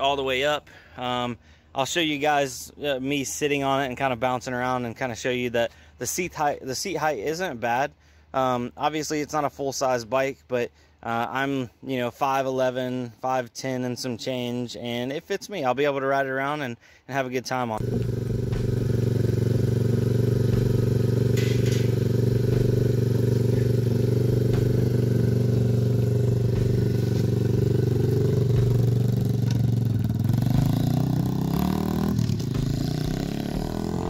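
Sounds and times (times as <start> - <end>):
motorbike engine idling and revving: 17.8 - 34.0.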